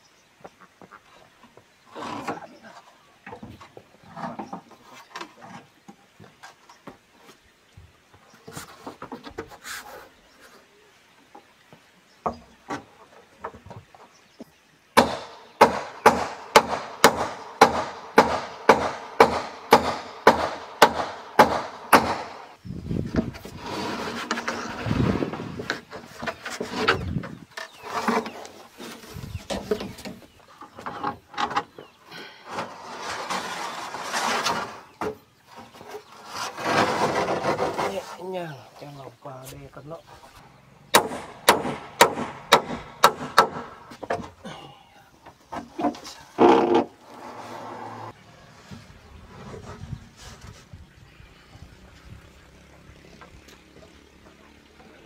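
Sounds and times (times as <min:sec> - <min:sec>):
sheet scraping over wooden rafters: 0:01.9 - 0:07.4, 0:08.4 - 0:10.6, 0:21.2 - 0:40.4, 0:45.4 - 0:53.8
hammer striking roofing sheet: 0:15.0 - 0:22.4, 0:40.9 - 0:43.9.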